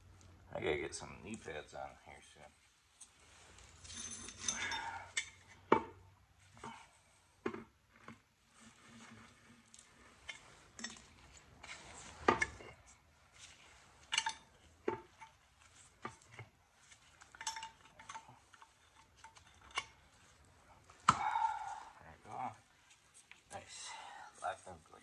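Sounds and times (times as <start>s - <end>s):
wrench clinking on metal: 3.8s - 5.5s, 14.0s - 14.6s, 17.2s - 20.0s.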